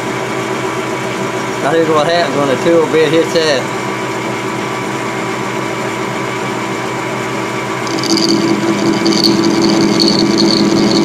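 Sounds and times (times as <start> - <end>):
metal lathe running: 7.6 - 11.0
tool bit rubbing high-pitched: 7.8 - 11.0.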